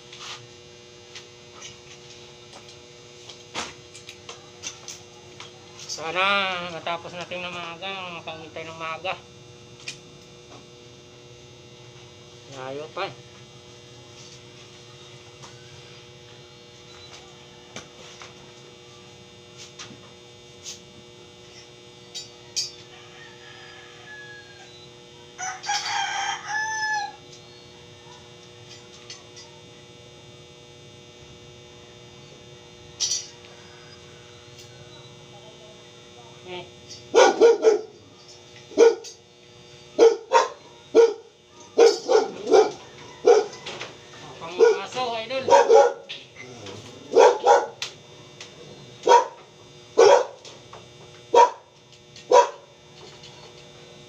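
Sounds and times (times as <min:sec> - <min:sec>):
electrical hum: 0:00.0 - 0:54.0
rooster crowing: 0:15.4 - 0:16.1, 0:22.4 - 0:28.4, 0:33.3 - 0:35.2, 0:41.0 - 0:46.0
dog barking: 0:37.1 - 0:38.0, 0:38.7 - 0:39.2, 0:40.0 - 0:43.7, 0:44.5 - 0:46.1, 0:47.0 - 0:47.8, 0:49.0 - 0:49.4, 0:50.0 - 0:50.4, 0:51.3 - 0:51.7, 0:52.3 - 0:52.7.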